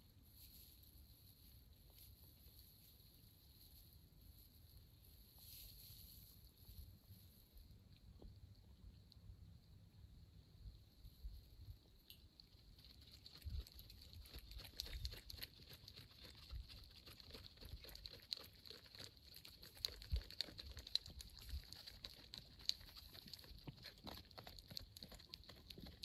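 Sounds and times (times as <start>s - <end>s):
cat chewing and lapping: 12.1s - 26.0s.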